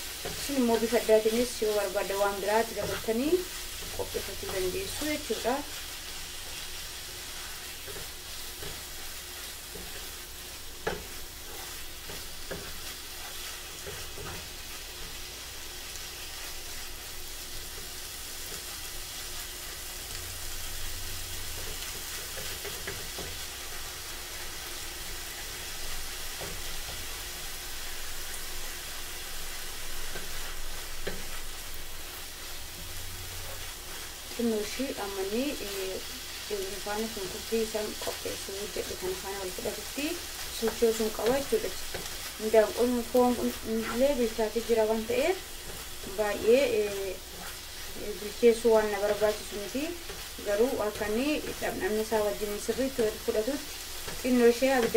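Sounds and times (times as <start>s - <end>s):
wooden spatula scraping pan: 0.0s - 6.7s, 32.7s - 54.9s
food sizzling in frying pan: 0.0s - 54.9s.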